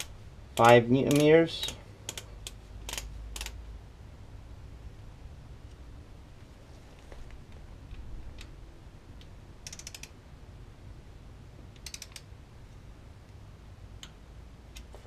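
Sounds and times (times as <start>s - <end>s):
ratchet wrench clicking: 0.0s - 3.6s, 9.6s - 10.2s, 11.7s - 12.3s.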